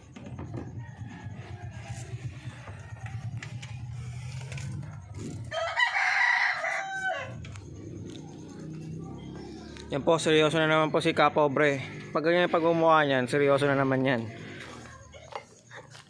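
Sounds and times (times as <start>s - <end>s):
rooster crowing: 0.3s - 4.1s, 5.1s - 8.0s.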